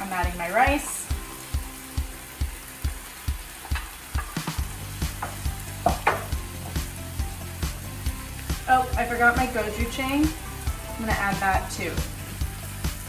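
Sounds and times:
rice sizzling in skillet: 0.0s - 13.0s
spatula scraping and knocking pan: 3.6s - 6.8s.

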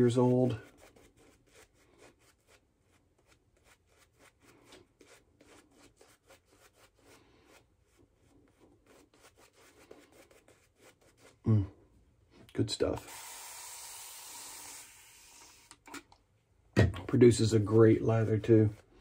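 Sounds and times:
shaving brush scrubbing: 0.0s - 11.5s, 17.4s - 19.0s.

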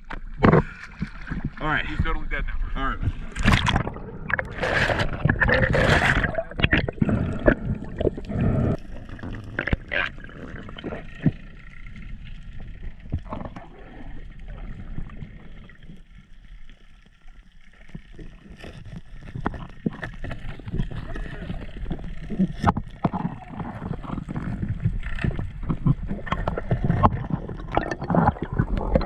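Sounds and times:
muffled underwater hush: 0.0s - 12.0s
water splashing and rushing: 0.0s - 29.0s.

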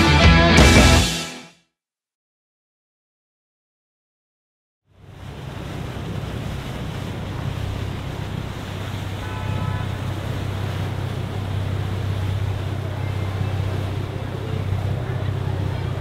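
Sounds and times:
boat engines rumbling: 4.9s - 16.0s
water washing along hull: 4.9s - 16.0s.

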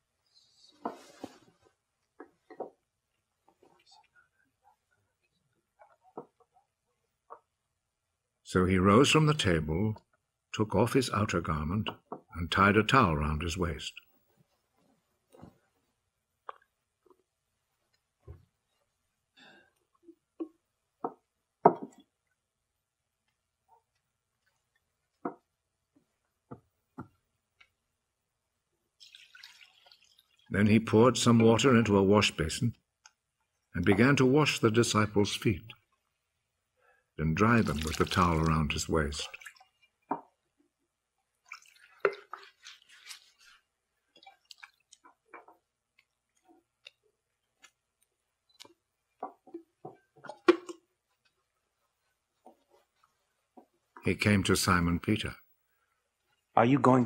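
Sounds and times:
water dripping and splashing: 29.0s - 30.6s, 37.3s - 51.6s
wet towel squishing: 37.3s - 40.1s, 41.2s - 48.0s.

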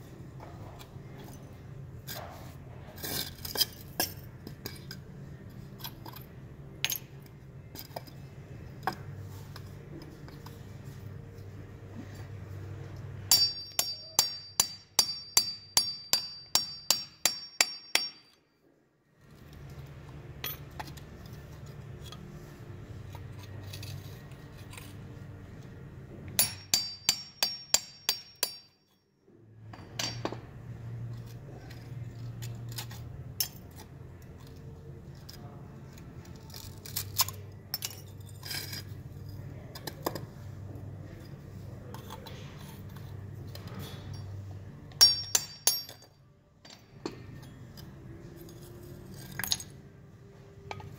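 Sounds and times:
low steady hum: 0.0s - 50.9s
hammer striking steel chisel: 13.2s - 18.5s, 26.4s - 29.0s, 29.8s - 30.5s, 44.9s - 47.2s.

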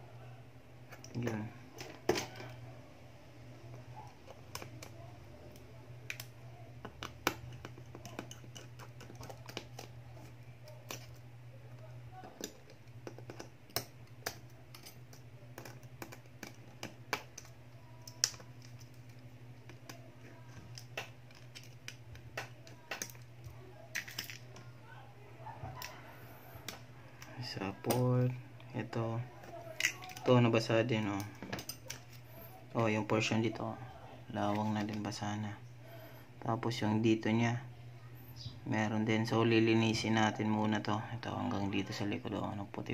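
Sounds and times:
steady low hum: 0.0s - 42.9s.

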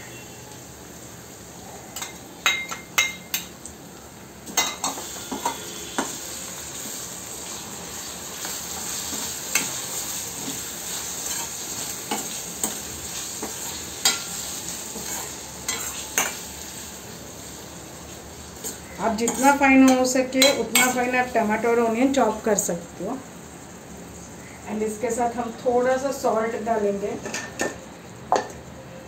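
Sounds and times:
vegetables sizzling in oil: 0.0s - 28.8s
spoon scraping and clinking on pan: 4.5s - 6.2s, 11.3s - 12.8s, 13.4s - 16.4s, 18.6s - 21.2s.

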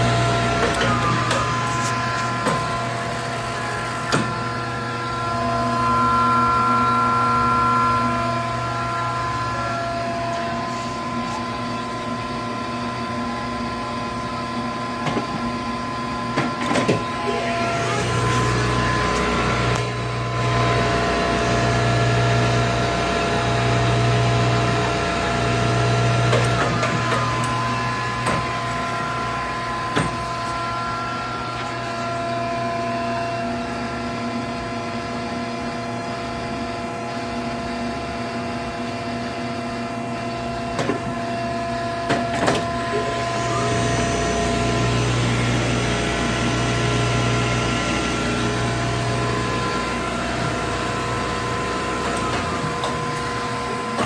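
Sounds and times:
wood lathe humming: 0.0s - 11.4s, 42.8s - 54.0s.

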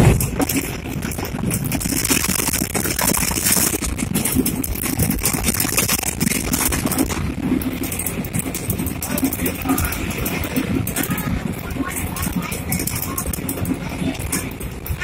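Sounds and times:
engine and road noise: 0.0s - 15.0s
small rattles and knocks: 0.0s - 15.0s.

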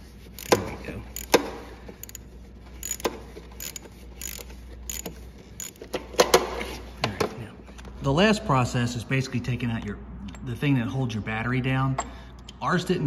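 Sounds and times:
socket ratchet clicking: 0.4s - 0.6s, 1.2s - 6.0s.

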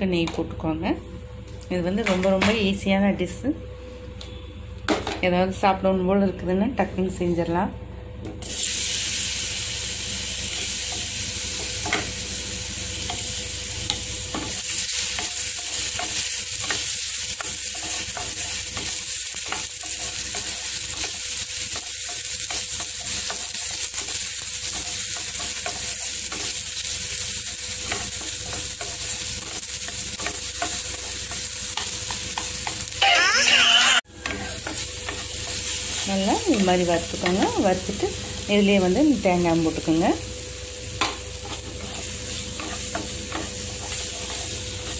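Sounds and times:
banana sizzling in a pan: 8.4s - 44.9s
brief high-pitched sound: 33.0s - 34.0s
wooden spatula scraping: 41.4s - 44.9s.

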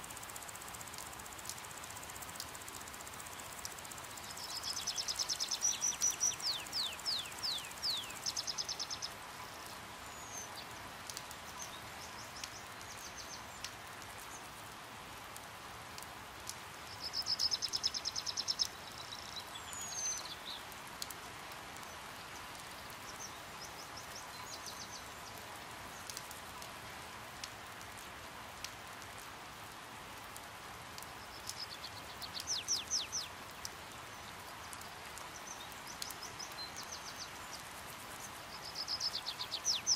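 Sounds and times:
rain hiss: 0.0s - 39.9s
hummingbirds chittering: 3.3s - 9.2s.

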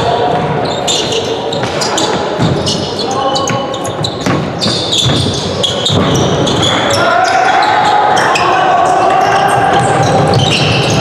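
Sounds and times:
echoing voices: 0.0s - 11.0s
ball bouncing on court floor: 3.4s - 6.7s.

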